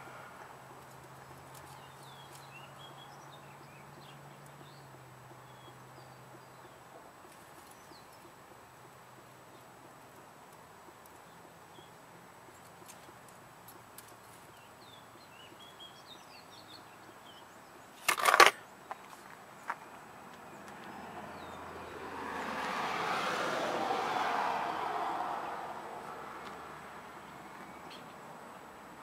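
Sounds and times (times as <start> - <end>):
broad rush of noise: 17.5 - 29.0.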